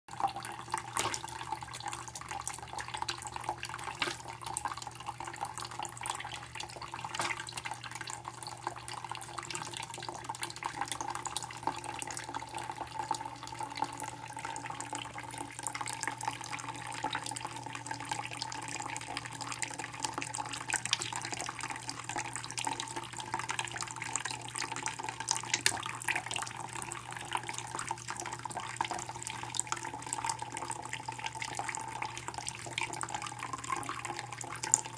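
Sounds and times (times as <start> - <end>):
tap water running into bowl: 0.1 - 34.9
bird splashing and flapping: 1.0 - 1.3, 3.9 - 4.4, 7.1 - 7.6.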